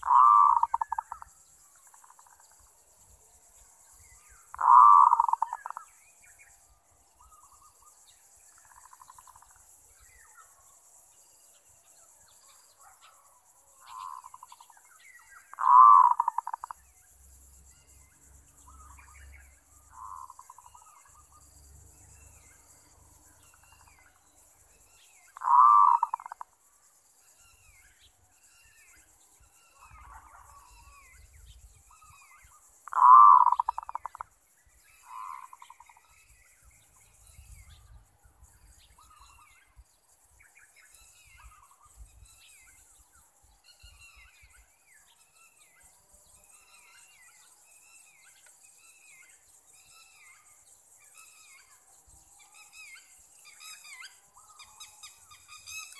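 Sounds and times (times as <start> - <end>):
dove cooing: 0.0 - 1.2, 4.6 - 5.8, 15.5 - 16.7, 25.4 - 26.4, 32.9 - 34.2
small birds chirping: 0.0 - 55.9.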